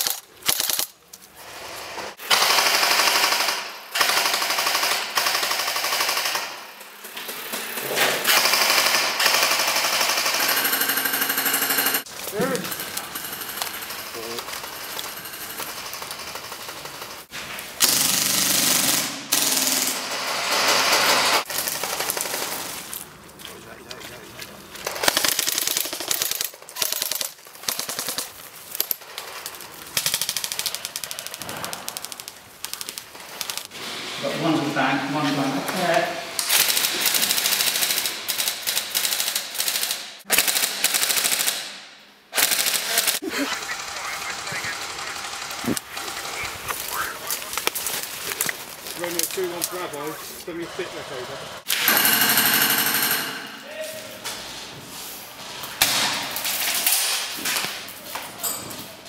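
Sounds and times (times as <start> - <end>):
airsoft gun firing bursts: 0.0 - 0.9, 2.3 - 6.6, 8.3 - 12.1, 36.5 - 41.8.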